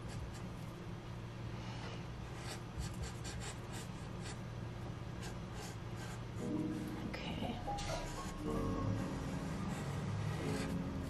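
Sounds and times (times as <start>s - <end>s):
marker scratching on paper: 0.0s - 0.5s, 2.4s - 4.4s, 5.2s - 7.0s, 7.8s - 8.4s, 9.6s - 11.0s
low steady hum: 0.0s - 11.0s.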